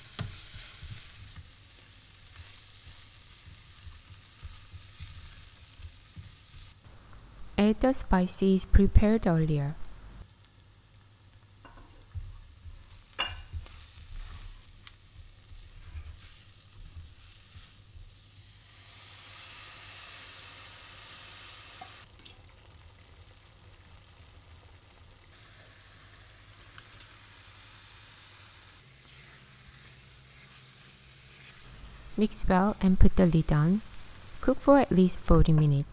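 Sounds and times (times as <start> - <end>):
sizzling in pan: 0.0 - 35.9
spatula scraping frying pan: 15.5 - 17.9, 28.9 - 31.7.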